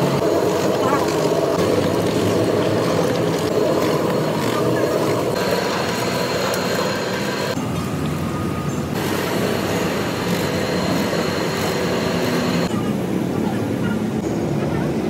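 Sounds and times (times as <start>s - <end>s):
oil mill rumbling: 0.0s - 13.5s.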